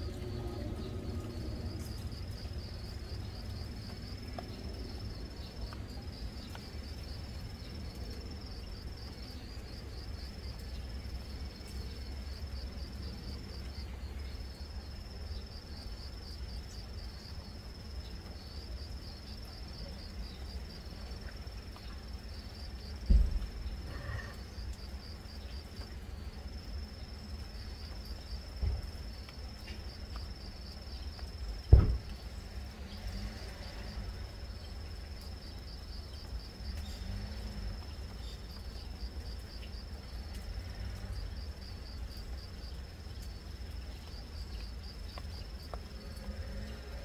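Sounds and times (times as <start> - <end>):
thump: 23.1 - 23.5, 28.6 - 28.9, 31.7 - 32.2.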